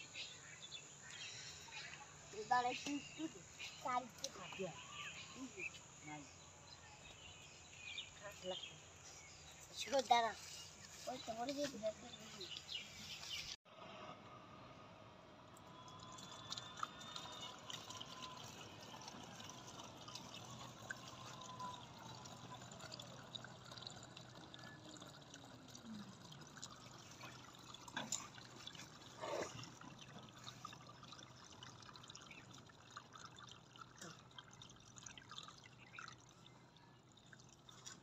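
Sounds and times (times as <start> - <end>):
liquid trickling into bottle: 15.7 - 38.0.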